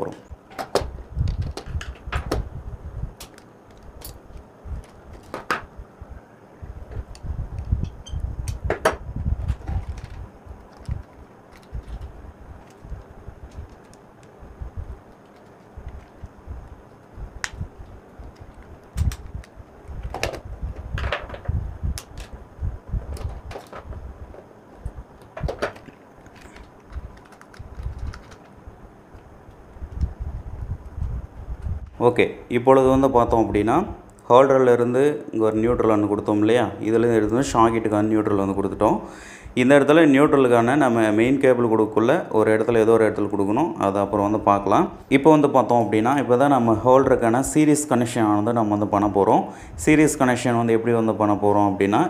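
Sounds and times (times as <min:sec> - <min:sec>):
wires and board handled: 0:00.5 - 0:02.5, 0:03.1 - 0:05.8, 0:06.8 - 0:30.2.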